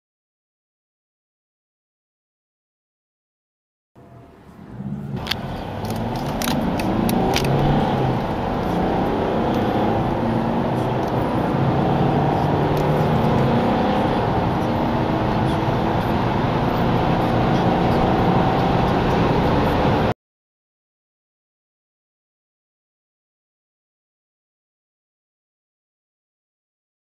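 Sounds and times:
diesel car engine accelerating: 4.0 - 20.2.

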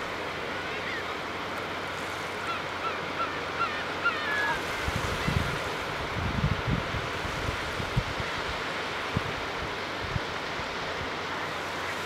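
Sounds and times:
surf lapping on shore: 0.0 - 12.0
geese calling: 2.4 - 4.6.

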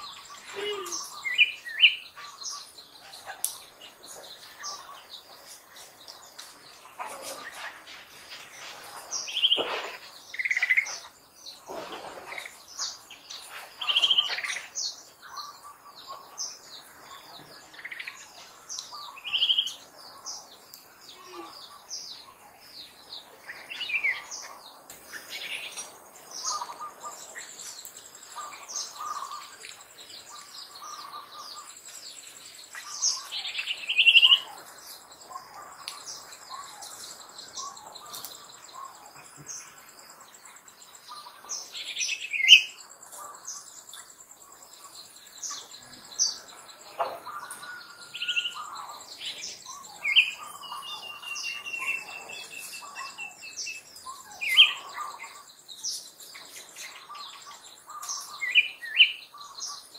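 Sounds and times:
birds chirping and calling: 0.0 - 59.9
high steady insect trill: 12.6 - 59.9.

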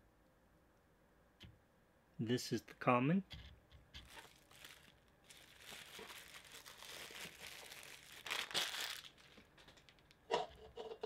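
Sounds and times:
plastic wrapping crinkling: 3.9 - 10.2.

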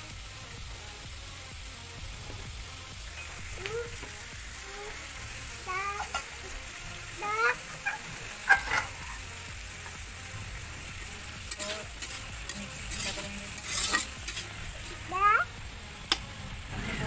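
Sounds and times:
vegetables sizzling: 0.0 - 17.0
metal ladle scraping a pan: 7.4 - 9.2, 11.4 - 15.0.

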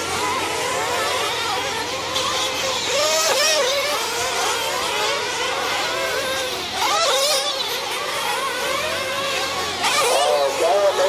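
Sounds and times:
rc car engines screaming: 0.0 - 11.0.

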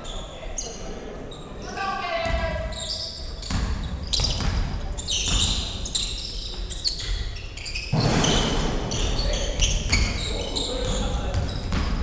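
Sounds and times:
sneakers squeaking: 0.0 - 12.0
basketball bouncing: 3.4 - 5.6, 10.8 - 12.0.

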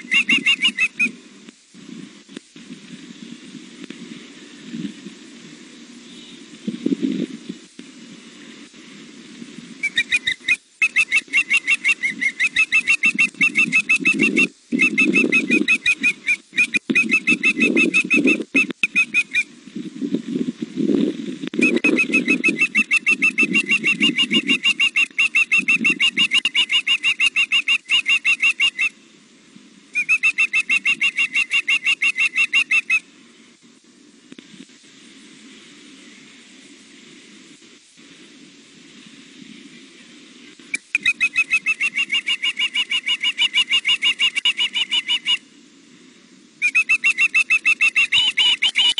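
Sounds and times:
young osprey rapid high chirps: 0.0 - 1.2, 9.8 - 19.5, 21.6 - 29.0, 29.9 - 33.0, 40.7 - 45.4, 46.6 - 48.9.

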